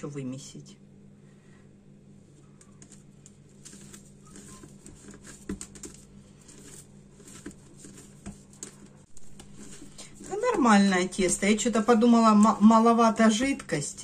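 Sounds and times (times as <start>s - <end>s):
steady low hum: 0.0s - 14.0s
hands kneading dough: 2.2s - 14.0s.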